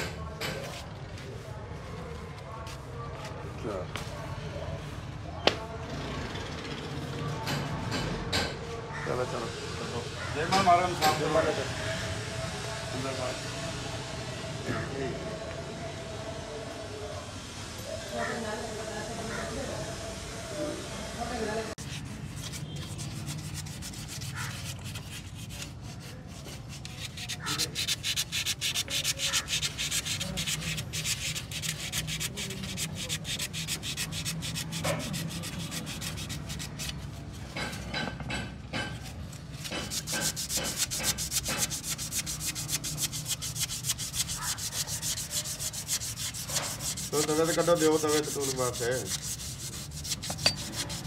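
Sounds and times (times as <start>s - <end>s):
scrubbing rusty metal: 21.8s - 38.2s, 38.8s - 51.0s.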